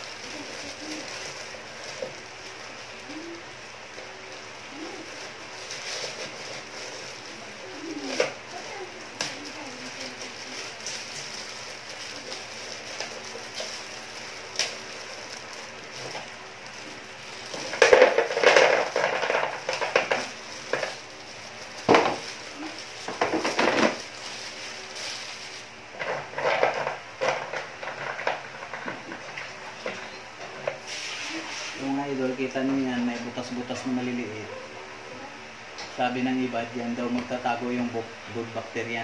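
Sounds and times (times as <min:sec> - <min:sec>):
plastic bag crinkling: 0:00.0 - 0:30.2
faint steady hum: 0:00.0 - 0:39.0.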